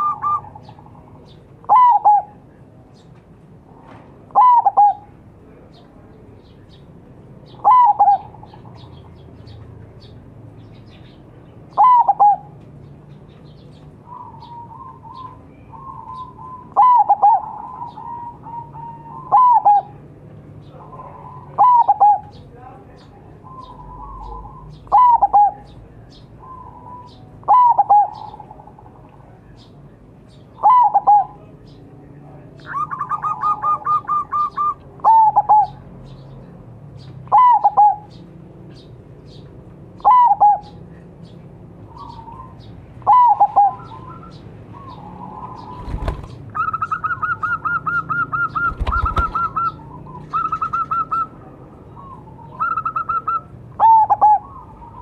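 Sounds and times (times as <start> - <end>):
doves cooing: 0.0 - 2.5, 3.6 - 5.2, 7.5 - 9.2, 11.7 - 12.6, 14.0 - 20.0, 20.7 - 22.4, 23.4 - 25.8, 26.4 - 29.4, 30.6 - 31.4, 32.6 - 36.3, 37.2 - 38.2, 40.0 - 41.2, 41.8 - 55.0.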